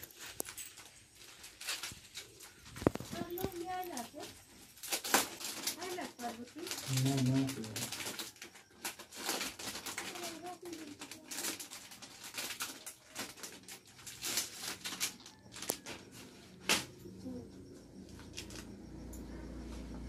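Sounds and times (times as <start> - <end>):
plastic packaging crinkling: 0.0 - 16.1.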